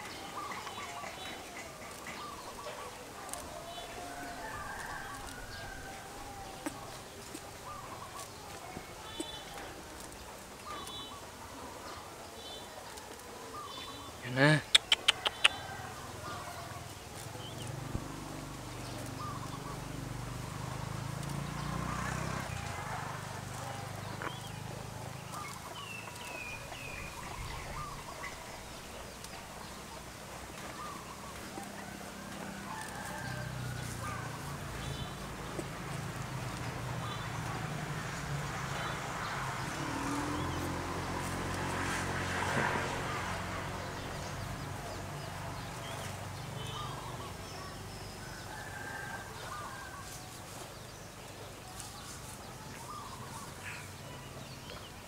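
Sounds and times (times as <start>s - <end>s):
high-pitched animal chirps: 14.7s - 15.5s.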